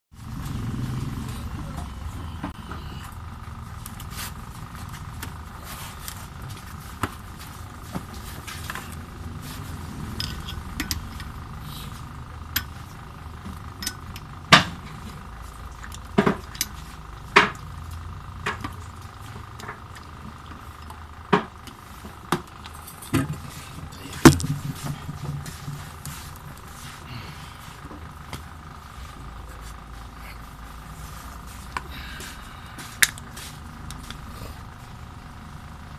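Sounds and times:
steady background hum: 0.2 - 35.9
metal tools clinking: 9.9 - 11.4, 13.7 - 14.3.

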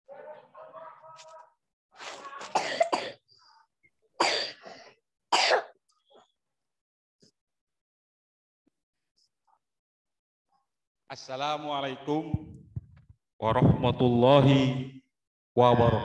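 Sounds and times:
person clearing throat: 2.4 - 3.2, 4.2 - 4.7, 5.3 - 5.7
person coughing: 2.5 - 3.2, 4.2 - 5.8.

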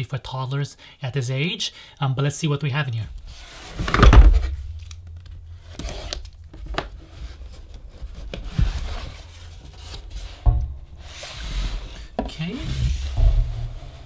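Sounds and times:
loud knock: 10.4 - 11.4.

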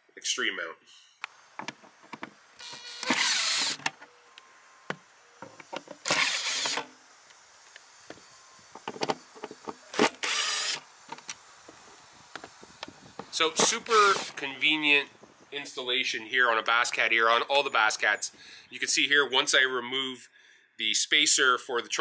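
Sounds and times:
power drill bursts: 2.6 - 3.9, 6.0 - 7.0, 9.9 - 10.9, 13.3 - 14.5.

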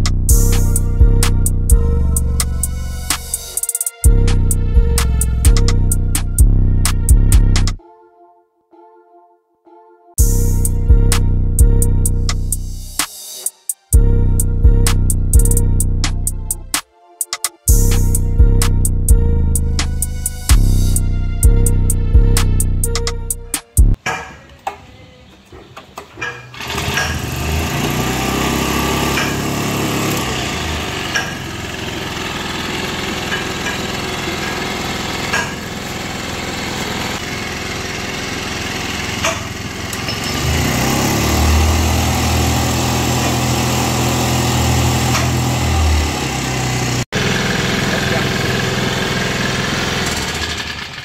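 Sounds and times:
small gasoline engine starting: 26.3 - 51.0.

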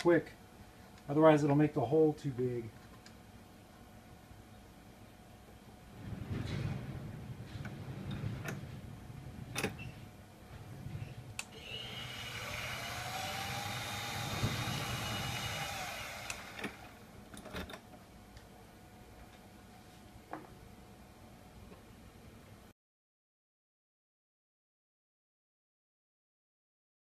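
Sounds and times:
drill press motor running: 11.5 - 17.1.

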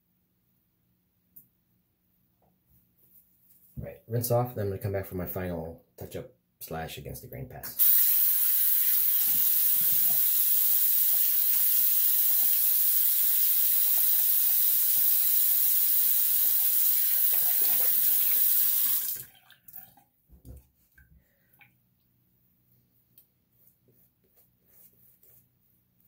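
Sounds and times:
sink tap running: 7.8 - 19.3.

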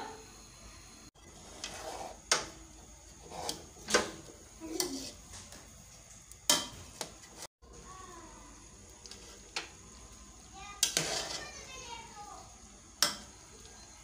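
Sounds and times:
metal spatula scraping pot: 1.2 - 2.5, 3.1 - 5.2, 10.8 - 11.7.

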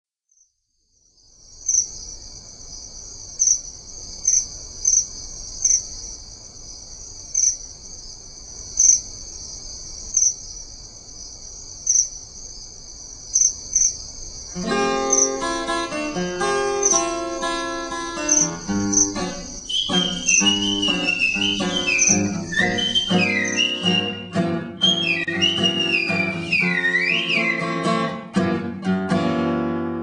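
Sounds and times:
insect chorus: 0.3 - 27.6
loud insect chirp: 0.3 - 27.6
acoustic guitar plucking chords: 14.6 - 30.0.

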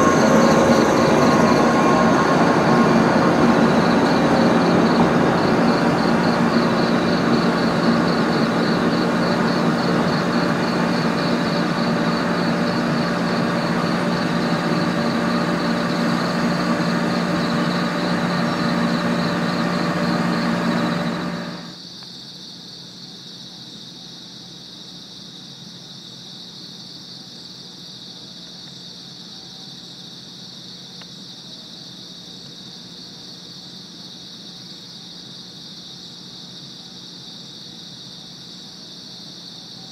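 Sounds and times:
electric train running: 0.0 - 21.7
crickets chirping: 0.0 - 39.9.

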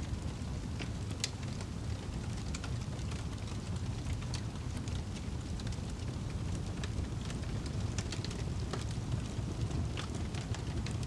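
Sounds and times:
wood fire crackling: 0.0 - 11.0.

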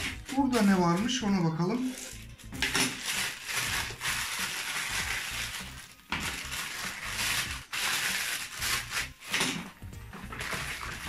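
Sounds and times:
plastic mailer bag crinkling: 0.0 - 11.0.

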